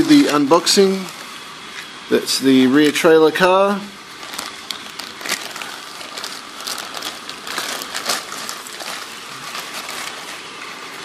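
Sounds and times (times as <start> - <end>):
plastic bags crinkling: 0.0 - 1.4, 3.6 - 11.0.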